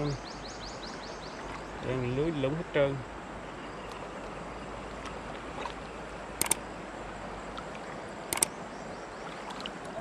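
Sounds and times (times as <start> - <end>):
rocky stream flowing: 3.0 - 10.0
quick double click: 6.4 - 6.6, 8.3 - 8.5.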